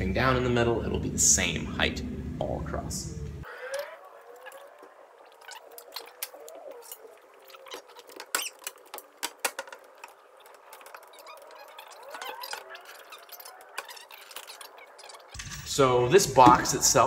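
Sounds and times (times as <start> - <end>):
faint squeaks: 3.4 - 15.4
wood and tools knocking: 7.7 - 15.4, 16.3 - 17.0.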